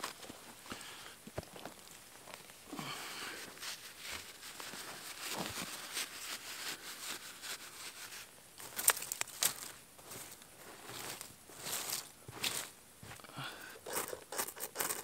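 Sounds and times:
twigs cracking: 0:08.6 - 0:09.8.

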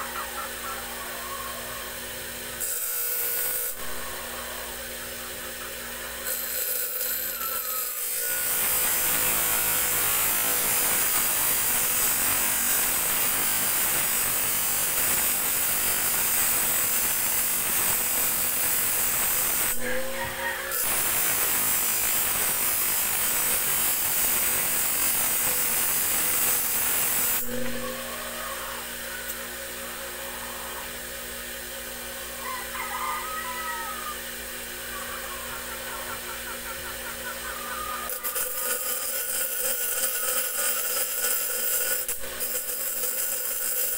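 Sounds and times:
grinder motor humming: 0:00.0 - 0:43.9
blade grinding on wheel: 0:02.4 - 0:04.6, 0:05.8 - 0:20.0, 0:37.7 - 0:43.9.

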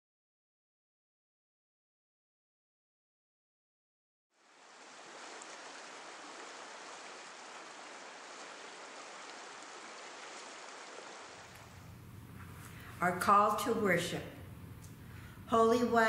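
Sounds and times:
water rushing over rocks: 0:04.4 - 0:11.8.

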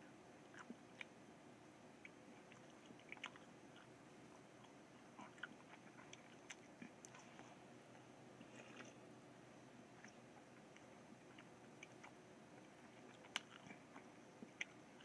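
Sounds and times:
wet mouth clicks chewing: 0:00.5 - 0:01.2, 0:02.0 - 0:04.0, 0:04.6 - 0:07.5, 0:10.0 - 0:15.0.

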